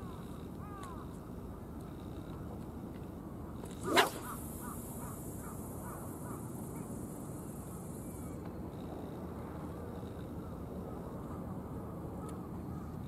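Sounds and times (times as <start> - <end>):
fishing rod swishing: 3.8 - 4.4.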